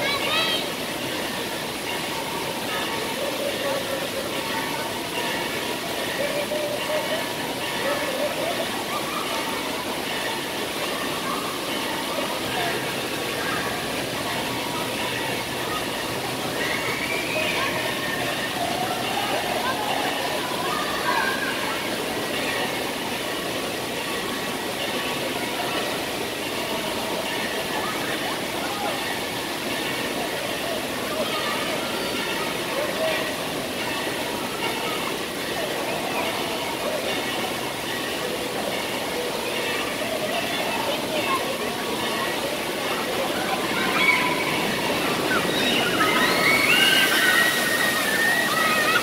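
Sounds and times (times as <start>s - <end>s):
water pouring and spraying: 0.0s - 49.0s
children shrieking and shouting: 15.1s - 21.9s, 43.0s - 49.0s.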